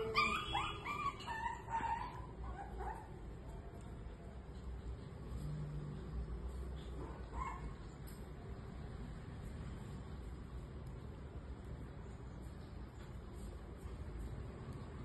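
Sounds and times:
puppies yipping and whining: 0.0s - 3.1s.

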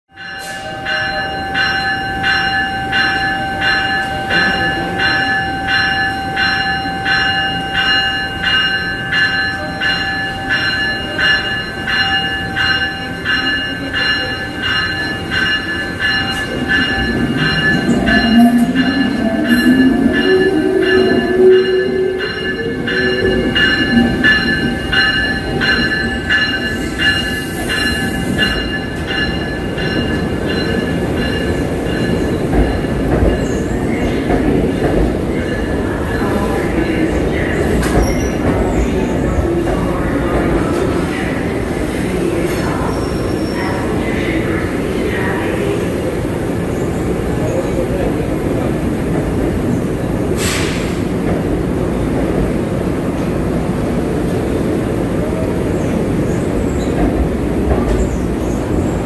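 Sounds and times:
locomotive bell ringing: 0.1s - 41.6s
train rumble: 0.2s - 59.0s.

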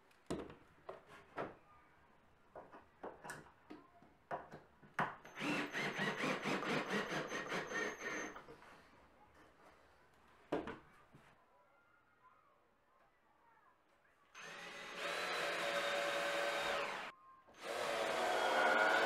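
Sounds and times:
cordless drill driving screw: 5.3s - 8.4s, 14.4s - 19.0s.

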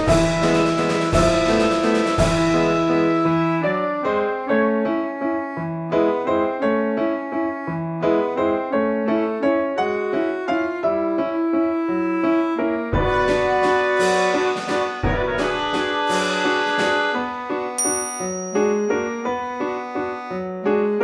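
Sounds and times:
piano melody: 17.8s - 20.9s.

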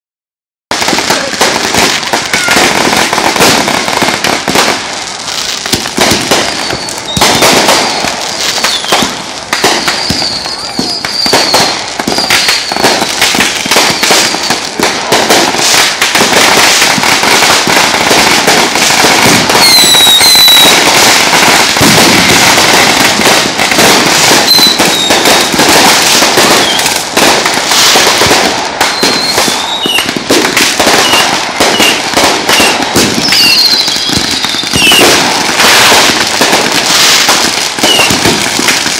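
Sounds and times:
firecrackers cracking and popping: 0.7s - 38.9s
shrill firework whistles: 2.1s - 3.0s, 5.7s - 14.5s, 19.0s - 23.4s, 24.0s - 27.0s, 27.6s - 36.2s, 36.8s - 38.9s.

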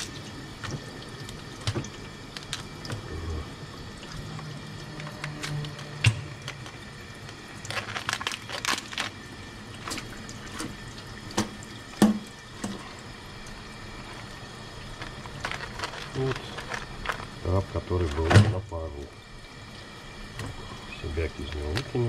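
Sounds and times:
crab shell cracking: 2.3s - 2.8s, 6.4s - 9.2s, 15.0s - 17.4s
tap running into steel sink: 10.6s - 12.8s.

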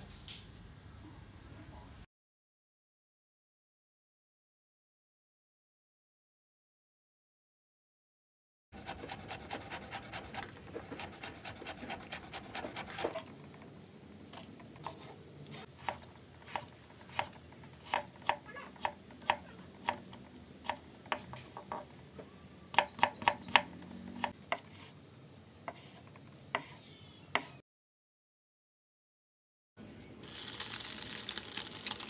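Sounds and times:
knife chopping on wooden board: 8.8s - 13.3s, 14.4s - 21.9s, 22.8s - 24.9s, 25.7s - 26.8s, 27.4s - 27.6s.

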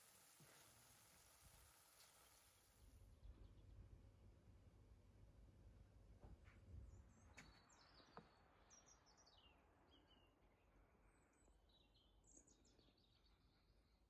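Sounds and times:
faint high bird chirps: 6.8s - 14.0s.

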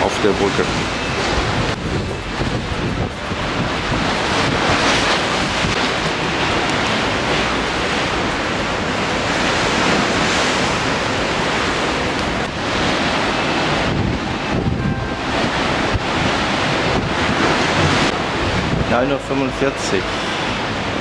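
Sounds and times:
rough sea rushing: 0.0s - 21.0s
wind buffeting microphone: 0.0s - 21.0s.

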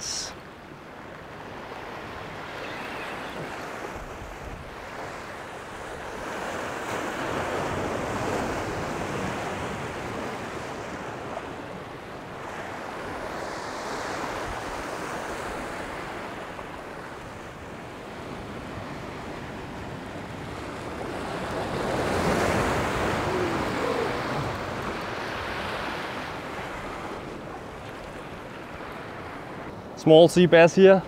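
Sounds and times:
surf washing against rocks: 1.4s - 29.7s
wind on microphone: 17.3s - 27.7s.

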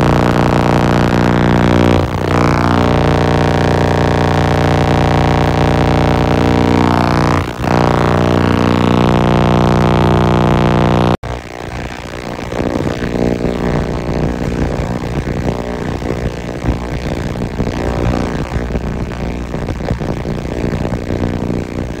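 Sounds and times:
ultrasonic cleaner buzzing: 0.0s - 11.2s.

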